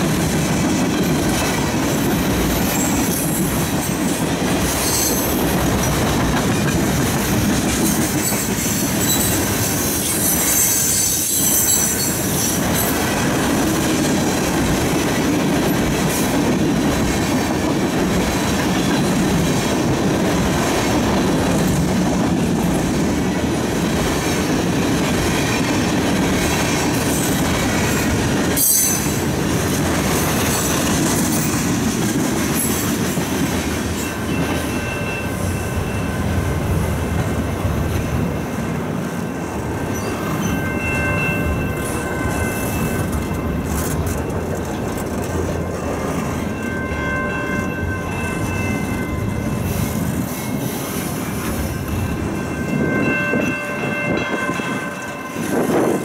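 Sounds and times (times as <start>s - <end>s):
train wheels rumbling on rails: 0.0s - 56.0s
wheel squeal: 4.8s - 5.4s, 8.2s - 12.5s.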